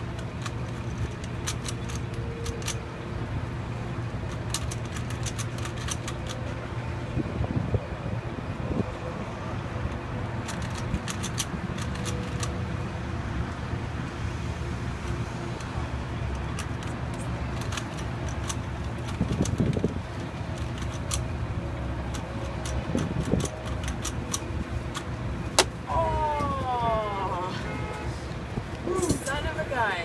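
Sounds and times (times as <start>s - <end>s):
low mechanical hum: 0.0s - 30.0s
puzzle cube clicking: 4.3s - 6.4s, 10.4s - 12.6s.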